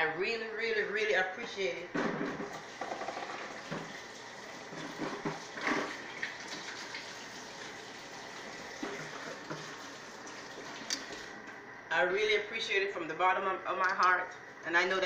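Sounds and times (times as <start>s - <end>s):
faucet running into sink: 2.4s - 11.3s.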